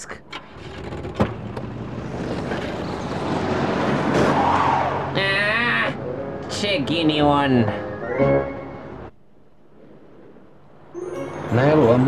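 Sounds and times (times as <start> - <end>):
tyres skidding: 0.2 - 6.1.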